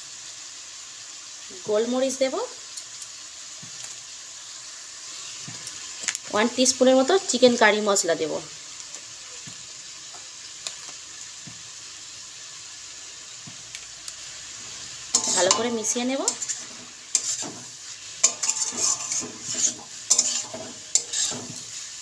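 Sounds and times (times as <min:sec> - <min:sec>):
vegetables sizzling in a wok: 0:00.0 - 0:22.0
spatula scraping a wok: 0:14.5 - 0:22.0.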